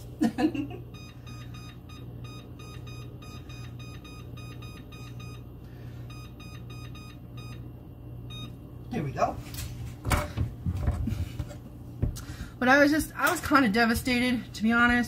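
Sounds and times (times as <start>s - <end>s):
steady low hum: 0.0s - 15.0s
oven control panel beeping: 0.9s - 8.6s.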